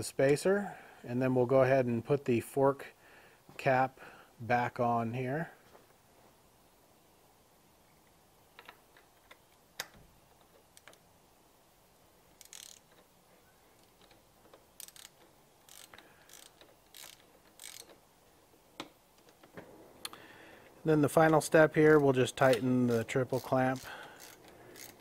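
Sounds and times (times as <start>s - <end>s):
ratchet wrench clicking: 12.4s - 13.1s, 13.8s - 18.0s, 22.5s - 25.0s.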